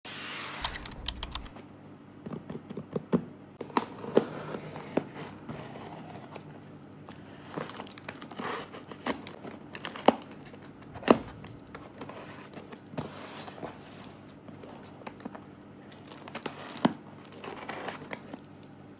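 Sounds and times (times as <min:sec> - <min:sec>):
packing tape crackling: 0:00.6 - 0:01.5.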